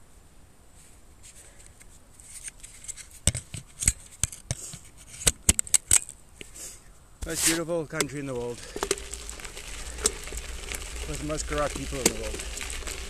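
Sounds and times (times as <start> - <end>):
tyres clicking on loose stones: 7.2 - 13.0
bike rattling over bumps: 8.0 - 13.0.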